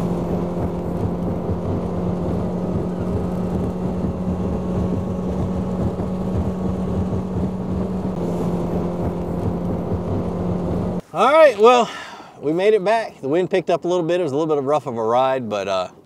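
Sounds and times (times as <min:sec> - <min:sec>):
boat hull through choppy water: 0:00.0 - 0:10.2
outboard motor running: 0:00.0 - 0:11.0
wind rushing: 0:00.0 - 0:11.0.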